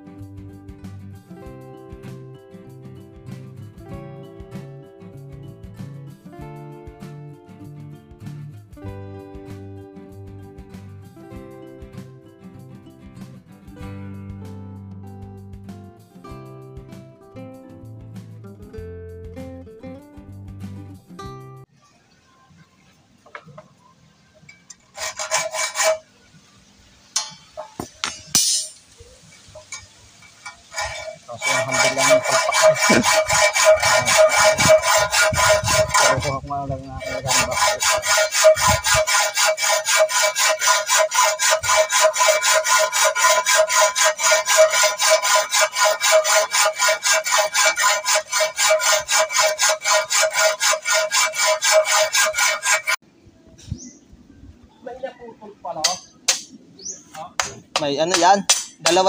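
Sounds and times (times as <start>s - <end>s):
hand saw cutting wood: 24.8s - 26.1s, 27.2s - 53.0s, 57.4s - 59.0s.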